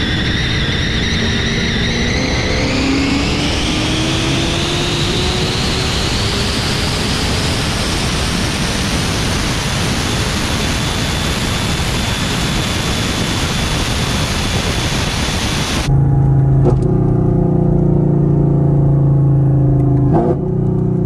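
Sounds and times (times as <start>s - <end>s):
wind rush: 0.0s - 16.6s
car engine: 0.0s - 21.0s
road roar: 0.0s - 21.0s.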